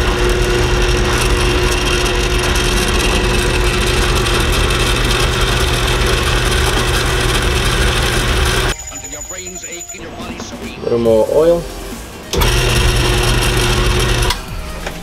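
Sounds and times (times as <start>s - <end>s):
drill press drilling into metal: 0.0s - 8.8s, 12.4s - 14.4s.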